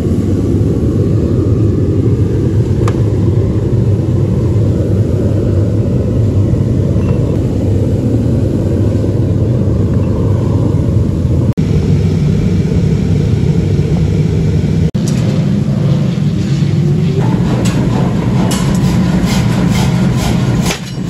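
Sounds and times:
forging hammer motor rumble: 0:00.0 - 0:21.0.

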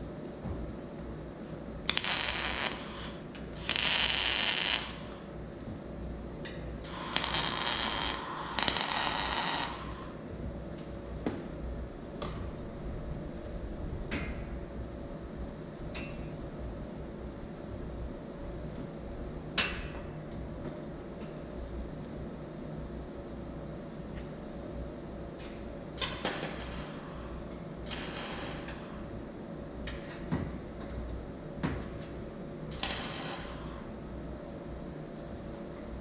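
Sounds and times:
steady low hum: 0:00.0 - 0:36.0
welding arc crackle: 0:01.9 - 0:05.3, 0:06.8 - 0:10.2, 0:26.0 - 0:27.2, 0:27.8 - 0:29.0, 0:32.7 - 0:33.8.

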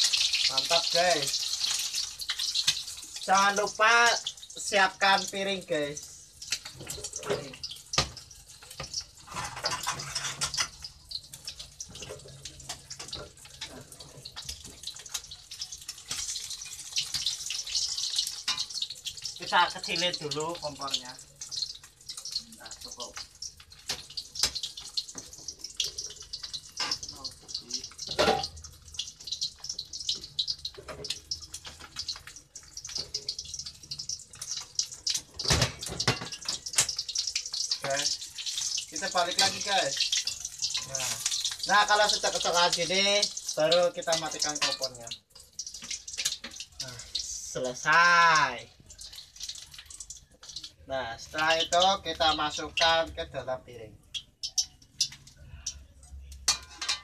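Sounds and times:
egg sizzling in oil: 0:00.0 - 0:57.0.

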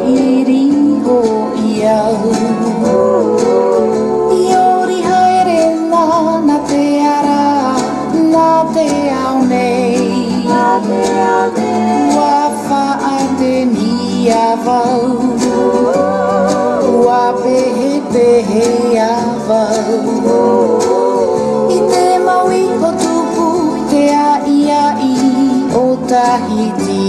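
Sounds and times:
person singing: 0:00.0 - 0:27.0
plucked string instruments: 0:00.0 - 0:27.0.

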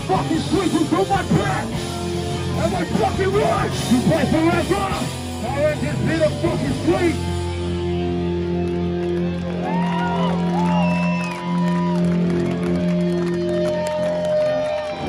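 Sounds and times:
amplified live band music: 0:00.0 - 0:15.0
crowd cheering and whooping: 0:08.6 - 0:15.0.

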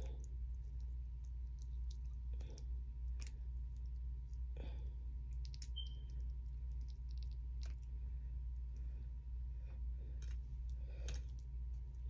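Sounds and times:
eating clicks and smacks: 0:00.0 - 0:04.5, 0:05.2 - 0:08.0
low hum: 0:00.0 - 0:12.0.

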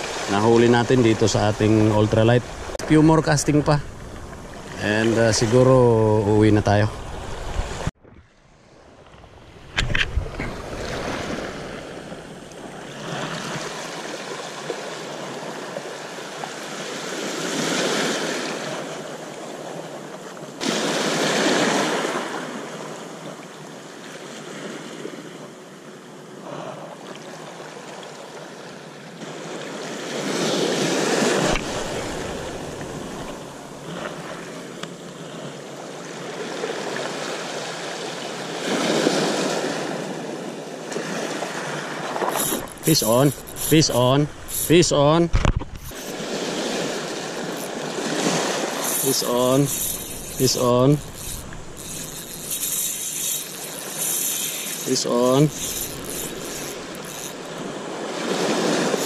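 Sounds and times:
waves washing over pebble shore: 0:45.9 - 0:49.7.

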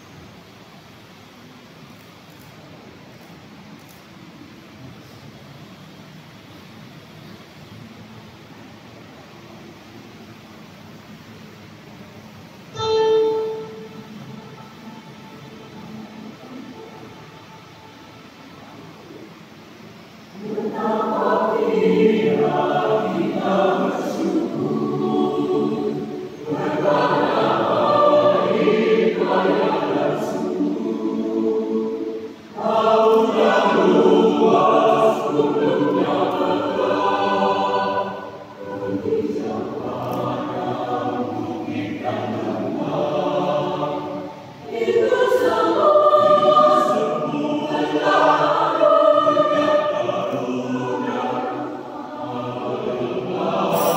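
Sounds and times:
mixed choir singing: 0:12.7 - 0:18.8, 0:20.3 - 0:53.9.

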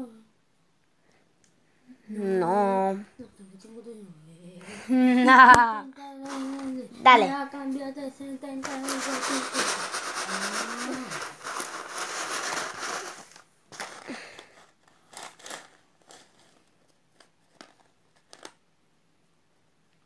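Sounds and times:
plastic counters clattering in a tray: 0:08.6 - 0:16.6.

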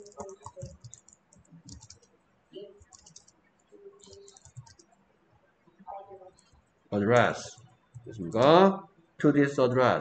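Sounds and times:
typing on keyboard: 0:00.0 - 0:02.1, 0:02.8 - 0:05.0.

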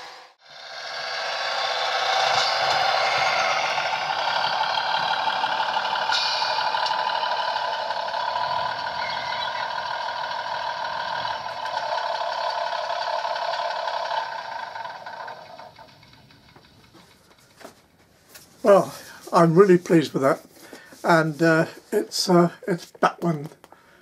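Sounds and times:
model train diesel engine sound: 0:00.0 - 0:17.9.

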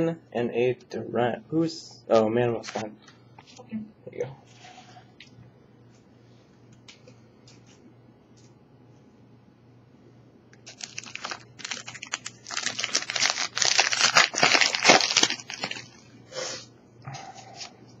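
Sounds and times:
foil wrapper crinkling: 0:10.6 - 0:16.1.

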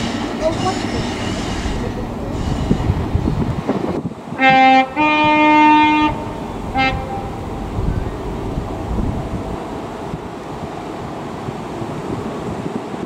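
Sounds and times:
train two-tone air horn: 0:00.0 - 0:03.3, 0:04.4 - 0:08.2
train running rumble: 0:00.0 - 0:13.0.

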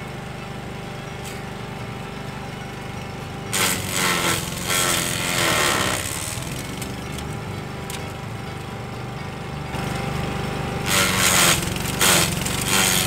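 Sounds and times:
lawn mower running: 0:00.0 - 0:13.0
mower blades shredding branch: 0:03.5 - 0:08.3, 0:09.7 - 0:13.0.

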